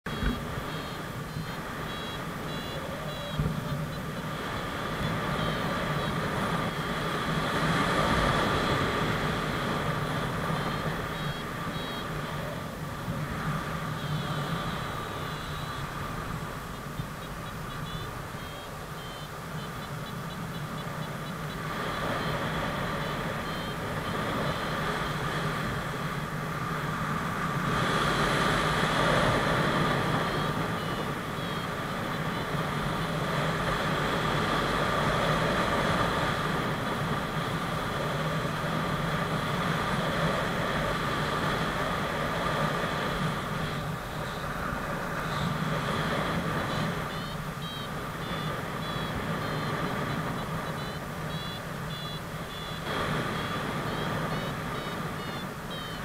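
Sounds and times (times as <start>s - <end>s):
variometer beeping in short pulses: 0.1s - 26.3s, 28.2s - 33.4s, 42.9s - 56.0s.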